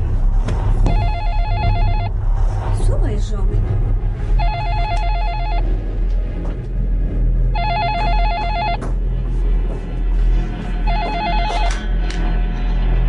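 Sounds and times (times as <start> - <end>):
low background music: 0.0 - 13.0
telephone ringing with electronic trill: 0.9 - 2.2, 4.4 - 5.7, 7.5 - 8.8, 10.8 - 11.8.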